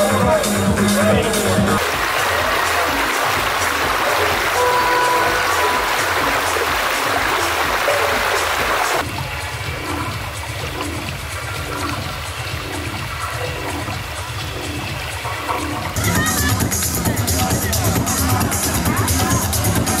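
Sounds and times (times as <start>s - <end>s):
distant techno music: 0.0s - 20.0s
stream water running over rocks: 1.8s - 17.2s.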